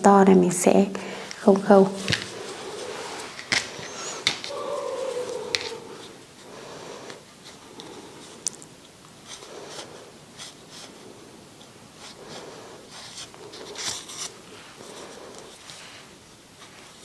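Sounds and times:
yarn and needle scratching: 11.6s - 15.8s.

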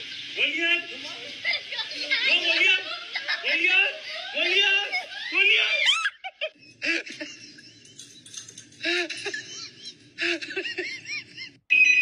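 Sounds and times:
person giggling: 8.8s - 11.6s.

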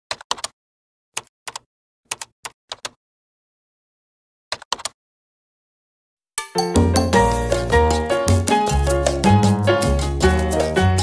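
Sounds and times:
keyboard keystroke clicks: 1.2s - 3.0s.

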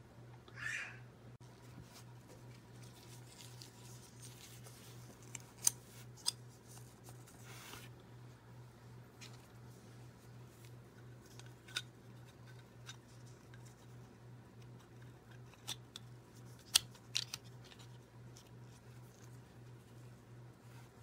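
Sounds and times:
steady low hum: 0.0s - 21.0s
plastic toy parts clicking: 15.0s - 18.4s.

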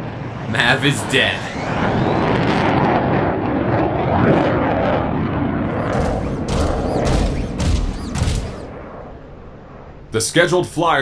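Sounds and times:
jet engine roaring: 0.0s - 11.0s
heavy metallic clanking: 5.8s - 8.7s.

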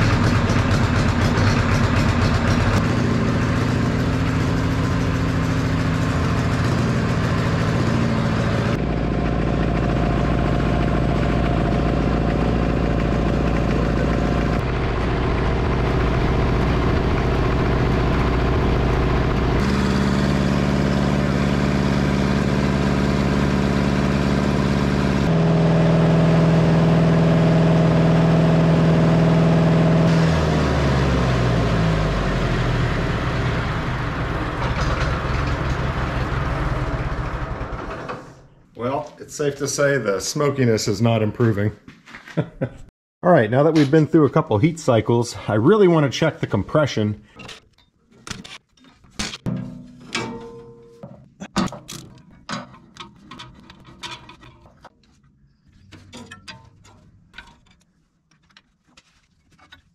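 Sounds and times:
diesel engine running: 0.0s - 38.6s.

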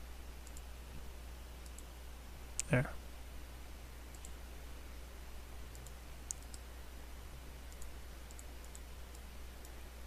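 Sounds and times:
steady low hum: 0.0s - 10.0s
computer mouse clicks: 0.4s - 0.7s, 1.6s - 1.9s, 4.1s - 4.4s, 5.7s - 6.7s, 7.7s - 9.8s.

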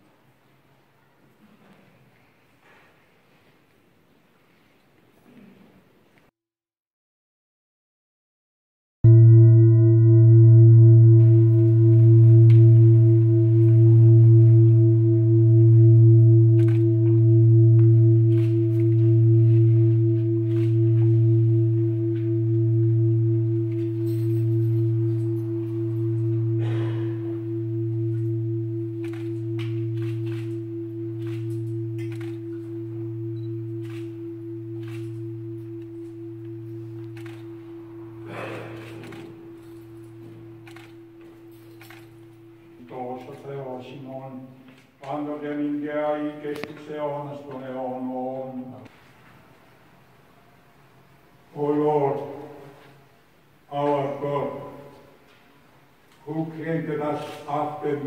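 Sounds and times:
singing bowl ringing: 9.1s - 43.9s.

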